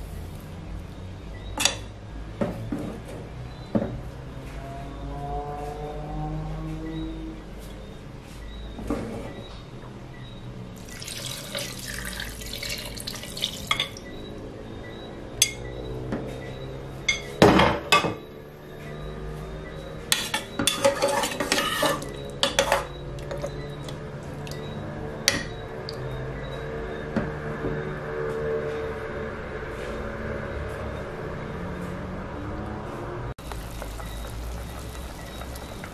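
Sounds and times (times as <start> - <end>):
liquid pouring into pot: 10.8 - 14.1, 33.4 - 35.9
metal spoon clinking and scraping: 20.2 - 23.4.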